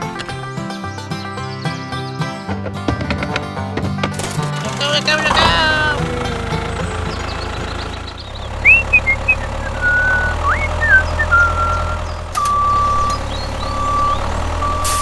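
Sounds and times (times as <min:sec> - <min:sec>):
tractor engine drone: 0:00.0 - 0:15.0
whistling chirps: 0:08.6 - 0:15.0
beeping reversing alarm: 0:09.8 - 0:15.0.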